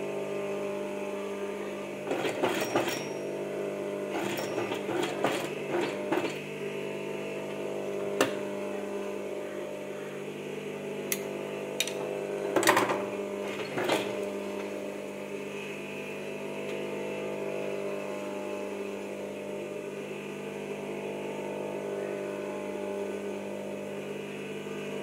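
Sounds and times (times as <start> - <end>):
sewing machine humming: 0.4 - 10.0, 11.6 - 21.4.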